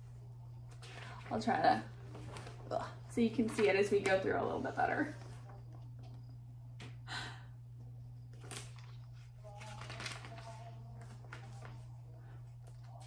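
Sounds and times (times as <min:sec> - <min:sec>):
steady low hum: 0:00.0 - 0:13.0
paper pages rustling: 0:00.7 - 0:02.7, 0:08.3 - 0:13.0.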